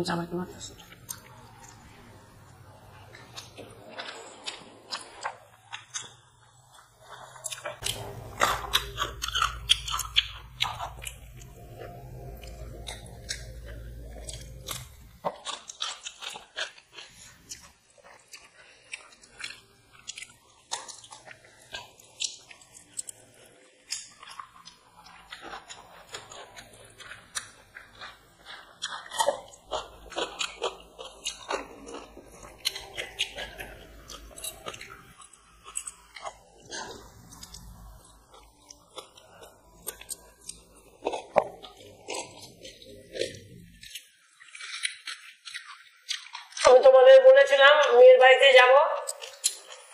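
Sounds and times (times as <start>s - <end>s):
low hum: 0.0s - 15.4s
chewing with mouth clicks: 0.6s - 46.9s, 48.9s - 49.9s.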